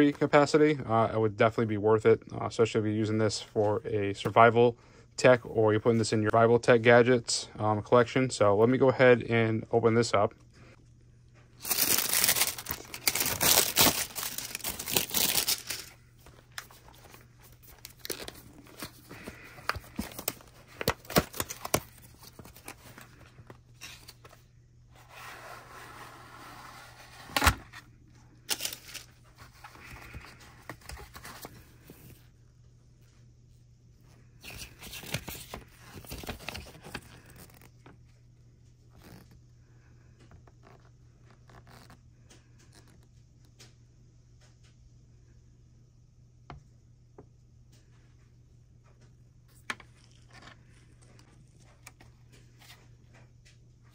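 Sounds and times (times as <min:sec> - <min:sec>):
plastic shrink wrap tearing: 0:11.6 - 0:16.0, 0:28.5 - 0:29.1.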